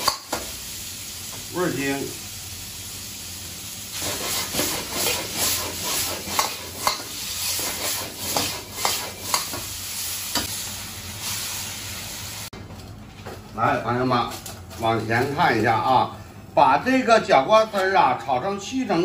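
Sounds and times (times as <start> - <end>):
vegetables sizzling in a wok: 0.0 - 12.5.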